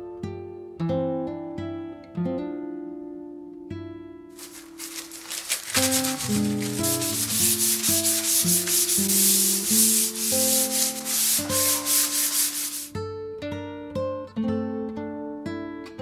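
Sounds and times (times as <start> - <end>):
paper rubbing on wood: 4.4 - 12.9.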